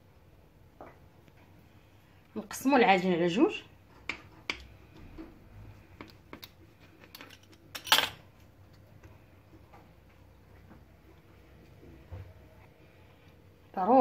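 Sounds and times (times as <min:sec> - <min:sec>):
dough taps and clicks: 0:03.9 - 0:07.2.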